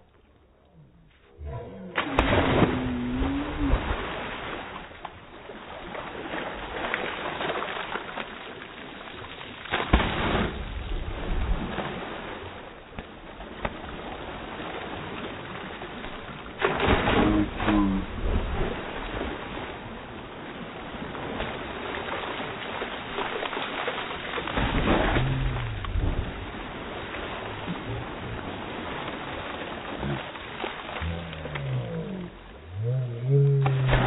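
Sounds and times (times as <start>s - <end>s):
slowed-down diving splashes: 0.0s - 34.0s
low gliding tone: 0.5s - 4.0s, 25.0s - 26.5s, 31.0s - 34.0s
water and wind wash: 1.4s - 34.0s.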